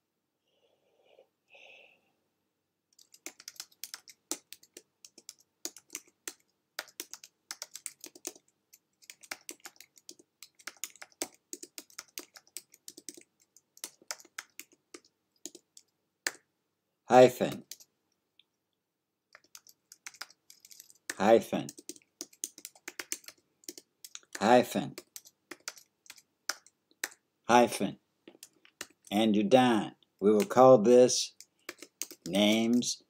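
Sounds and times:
typing on computer keyboard: 3.0 - 16.4, 17.4 - 17.9, 19.3 - 27.2, 28.3 - 29.1, 31.3 - 32.9.

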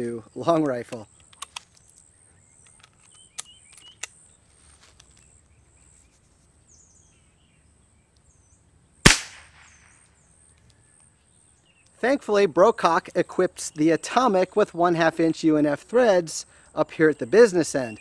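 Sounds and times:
gun handling clicks: 0.6 - 4.3
air pistol shot with echo: 9.0 - 10.0.

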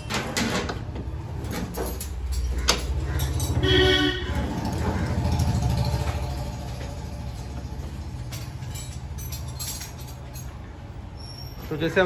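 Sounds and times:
vehicle engine humming: 2.1 - 11.2.

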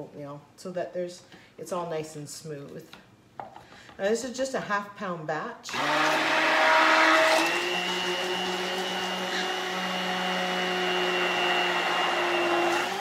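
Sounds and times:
stick blender humming: 5.7 - 13.0.

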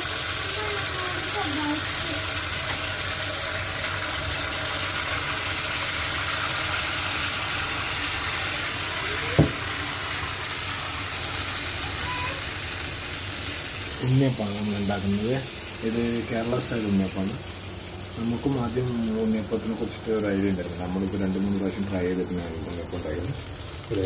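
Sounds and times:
batter sizzling in hot oil: 0.0 - 24.0
short knock: 9.4 - 9.6.

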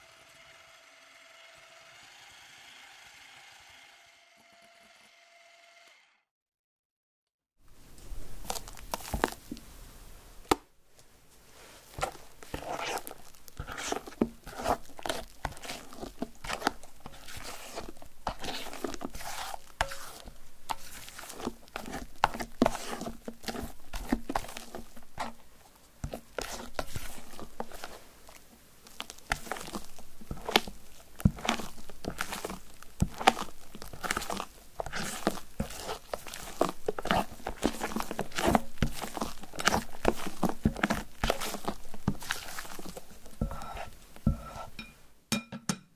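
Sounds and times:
spatula folding foam in bowl: 8.4 - 9.7, 11.4 - 45.0.

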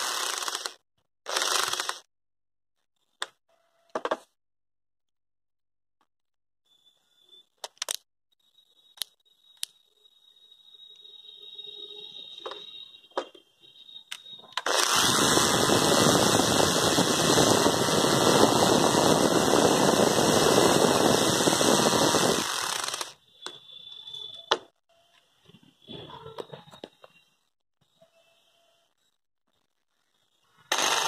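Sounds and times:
cordless drill driving screw: 0.0 - 2.1, 14.6 - 23.2, 30.7 - 31.0.

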